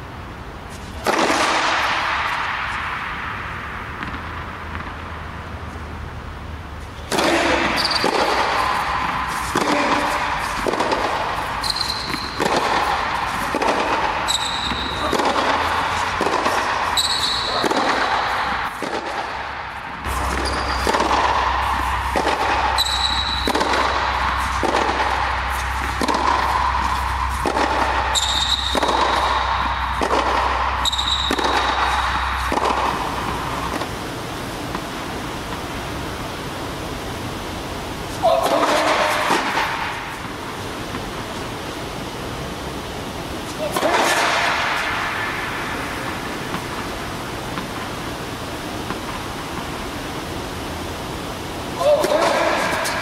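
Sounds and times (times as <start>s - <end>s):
racket hitting tennis ball: 0.7s - 5.9s, 6.8s - 36.4s, 38.1s - 41.4s, 43.4s - 50.2s, 51.8s - 53.0s
tennis ball bouncing: 0.7s - 5.9s, 6.8s - 36.2s, 38.4s - 41.2s, 43.7s - 50.0s
tennis shoes squeaking: 6.8s - 19.2s, 20.0s - 34.0s.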